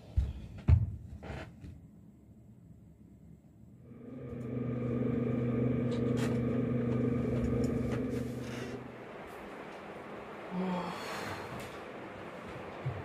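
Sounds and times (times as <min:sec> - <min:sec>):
low humming drone: 0:03.4 - 0:12.8.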